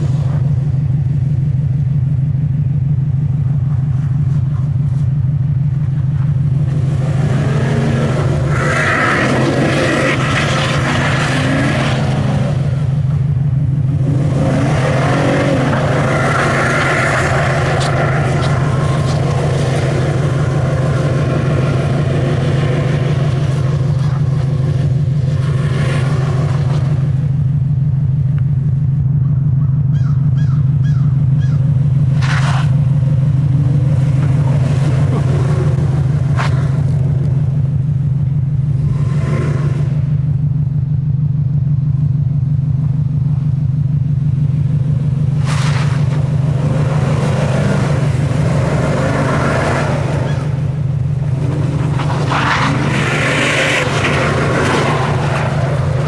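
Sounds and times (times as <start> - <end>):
truck engine droning: 0.0 - 56.0.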